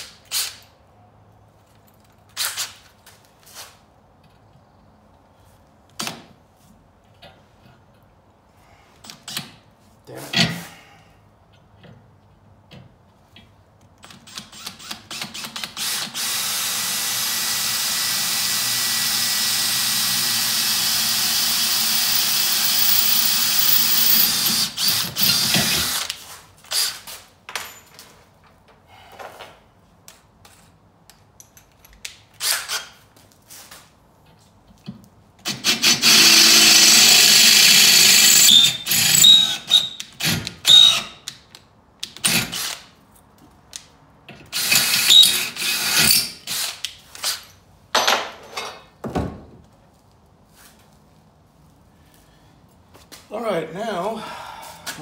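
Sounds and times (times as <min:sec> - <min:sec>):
cordless drill boring into steel: 0:15.8 - 0:26.1, 0:35.6 - 0:40.0, 0:40.6 - 0:41.1, 0:44.6 - 0:46.7.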